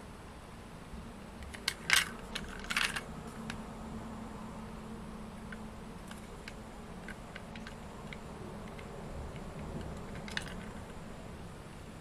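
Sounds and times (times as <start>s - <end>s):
steady low hum: 0.0s - 12.0s
fingers clicking on plastic toy train: 1.4s - 3.6s, 5.4s - 11.0s.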